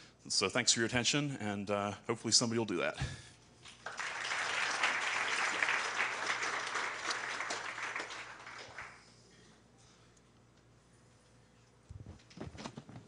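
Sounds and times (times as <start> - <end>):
audience applauding: 3.7 - 9.2.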